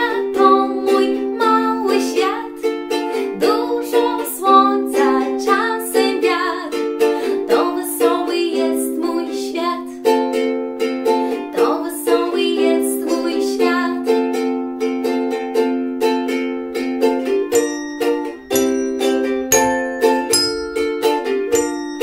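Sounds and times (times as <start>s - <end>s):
woman singing: 0.0s - 10.1s, 11.3s - 14.3s
ukulele strumming: 0.0s - 22.0s.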